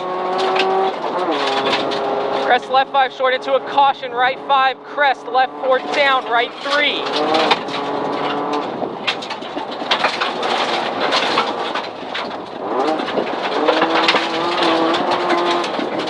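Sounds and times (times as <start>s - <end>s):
car engine revving: 0.0s - 16.0s
gravel clattering against underbody: 5.9s - 16.0s.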